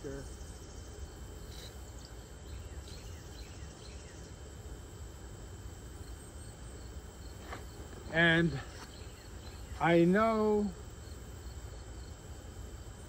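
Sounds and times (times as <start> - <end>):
insects trilling: 0.0 - 13.0
faint chirps: 6.0 - 10.7.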